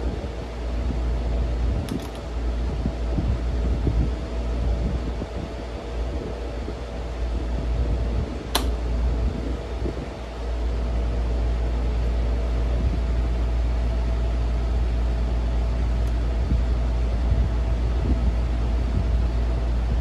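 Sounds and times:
desk fan motor hum and whir: 0.0 - 20.0
sharp click: 1.9 - 2.2, 8.5 - 8.8.

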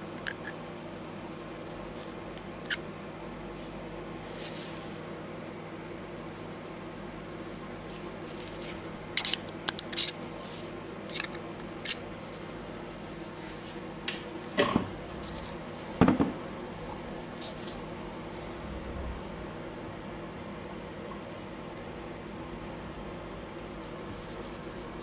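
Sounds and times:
parts set down on wooden table: 16.0 - 16.4.

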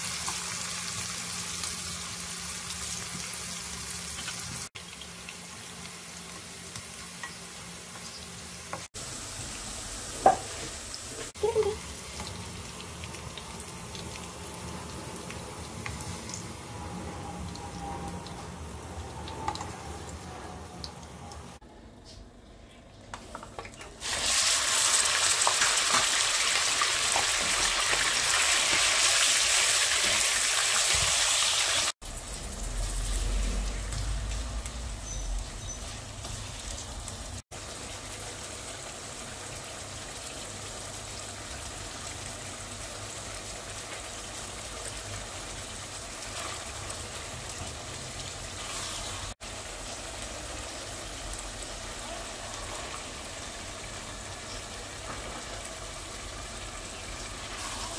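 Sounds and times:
meat sizzling in hot oil: 0.0 - 20.1, 24.0 - 57.9
sizzling and bubbling liquid: 0.0 - 21.6, 23.1 - 57.9.

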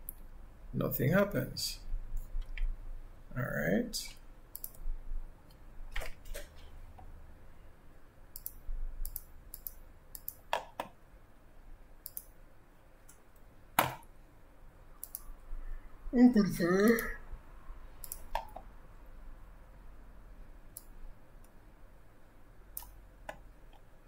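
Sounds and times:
mouse and keyboard clicks: 4.5 - 4.8, 8.4 - 11.0, 15.0 - 15.3, 18.0 - 18.6.

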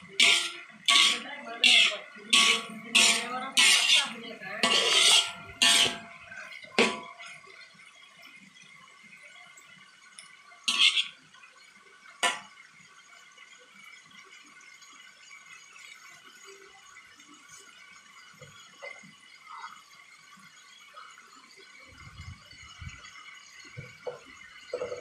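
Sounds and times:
metal spatula scraping wok: 0.0 - 7.1, 10.7 - 11.2
tofu and onions sizzling in wok: 0.0 - 7.5, 10.6 - 11.3.

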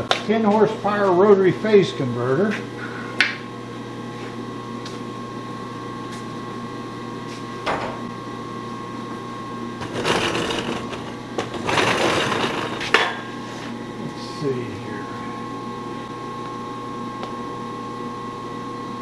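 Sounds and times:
electric machine humming: 0.0 - 19.0
rasping handling noise: 9.8 - 13.0.

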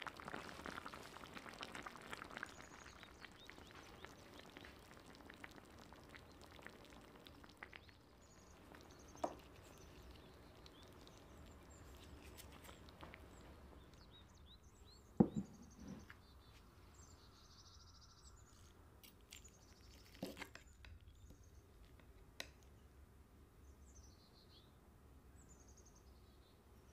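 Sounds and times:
small birds chirping: 0.2 - 22.9, 23.6 - 26.9
soft knocks: 15.2 - 16.1.

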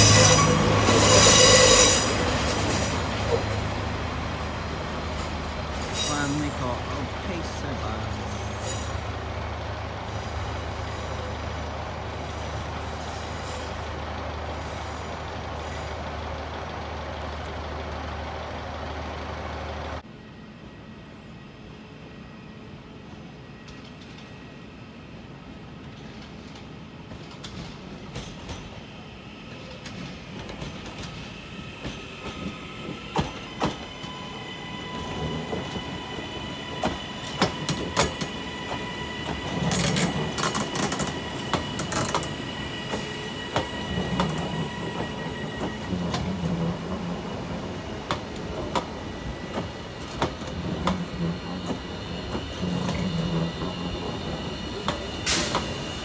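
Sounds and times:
electric train whining: 0.0 - 56.0
train wheels clattering: 26.0 - 28.9, 36.6 - 56.0.

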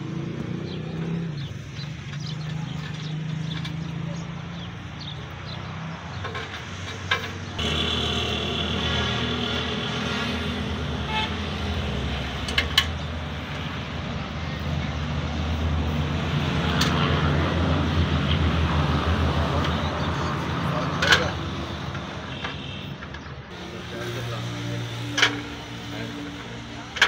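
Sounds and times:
engine running: 0.0 - 27.0
sharp metallic clicks and knocks: 0.4 - 8.0, 12.3 - 13.7, 20.9 - 23.5, 25.0 - 25.6.

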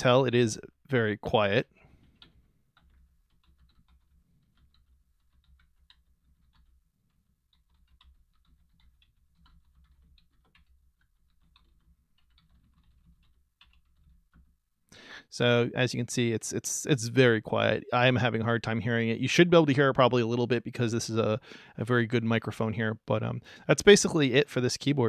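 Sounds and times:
soft keyboard typing: 1.4 - 14.7.

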